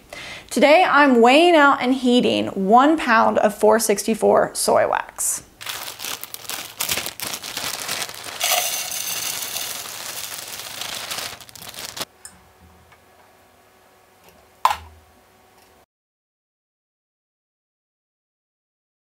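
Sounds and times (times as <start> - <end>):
wax flakes pouring from plastic bag: 5.6 - 12.1.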